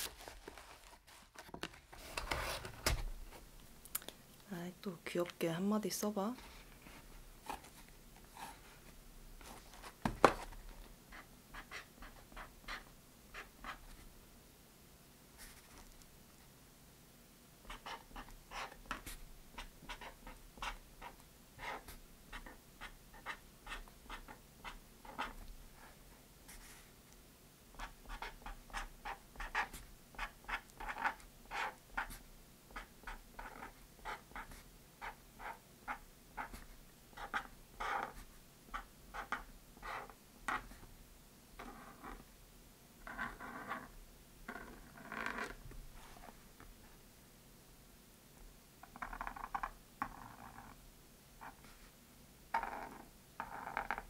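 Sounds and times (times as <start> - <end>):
pen writing on cardboard: 11.1 - 14.0, 17.7 - 25.4, 27.8 - 40.8.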